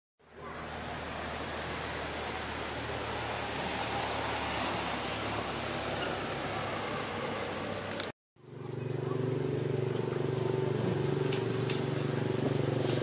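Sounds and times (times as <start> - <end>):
steady rushing noise: 0.4 - 8.1
small engine running: 0.4 - 13.0.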